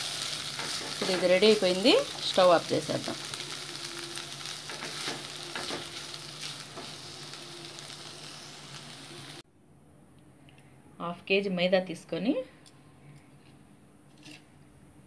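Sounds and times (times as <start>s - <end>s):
food sizzling in a pan: 0.0s - 9.4s
wooden spatula scraping: 0.2s - 2.5s, 3.2s - 8.1s.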